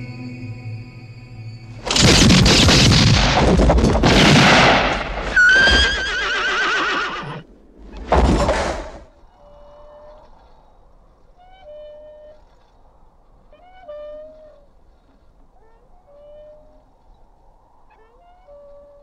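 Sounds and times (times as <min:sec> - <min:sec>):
gunshots with long echoes: 0:01.8 - 0:05.3
horse whinnying: 0:05.2 - 0:08.1.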